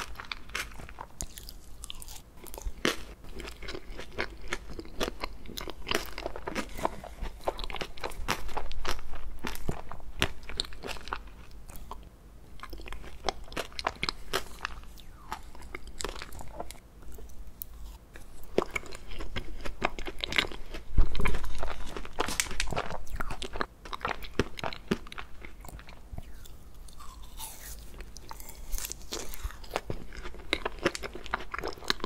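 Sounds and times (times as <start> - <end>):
person chewing with clicks: 0.0 - 32.0.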